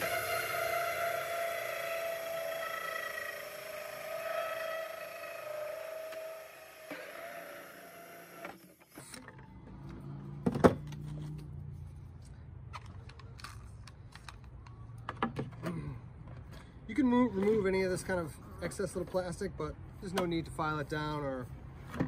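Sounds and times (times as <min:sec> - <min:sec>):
drill hole saw cutting plastic: 0:00.0 - 0:09.2.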